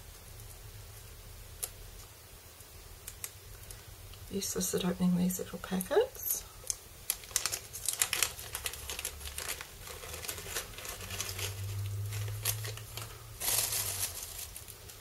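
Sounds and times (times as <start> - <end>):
plastic packet crinkling: 6.6 - 15.0.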